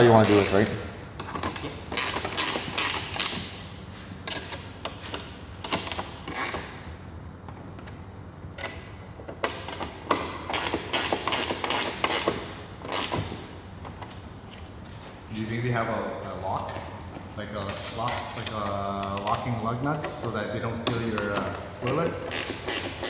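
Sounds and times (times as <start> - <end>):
ratchet wrench clicking: 0.2 - 0.7, 1.9 - 3.4, 5.6 - 6.8, 10.5 - 13.2, 21.8 - 23.0.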